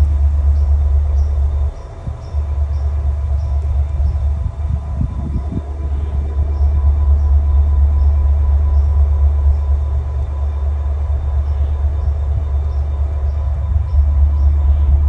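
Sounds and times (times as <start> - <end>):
diesel locomotive idling: 0.0 - 15.0
thin constant whine: 0.0 - 15.0.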